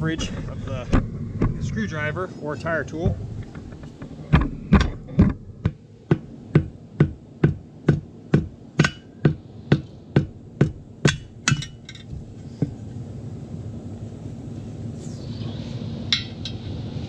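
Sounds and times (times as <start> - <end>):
hammer striking metal: 5.6 - 12.0.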